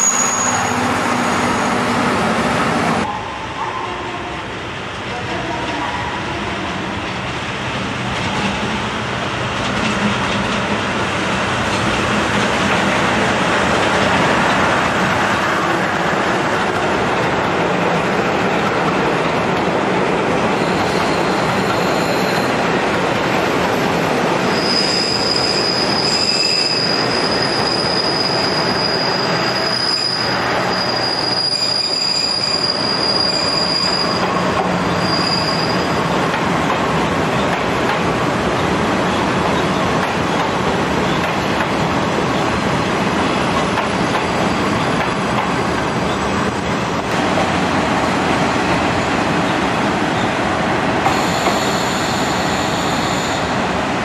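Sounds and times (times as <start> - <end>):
high wheel squeal: 0.0 - 2.2, 20.6 - 22.6, 24.4 - 36.0, 51.1 - 53.6
train wheels rumbling and clattering: 6.9 - 54.0.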